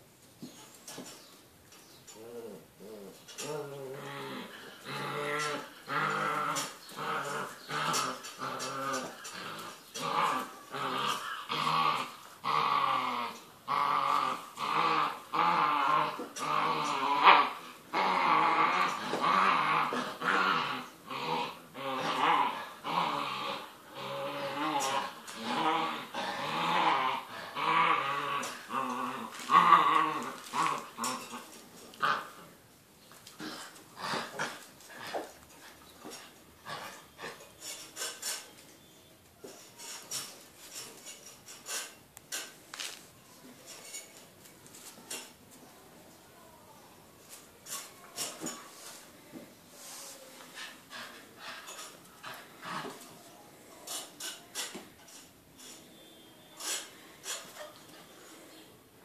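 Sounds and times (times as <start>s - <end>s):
puppies growling in play: 2.1s - 38.6s, 50.4s - 55.8s.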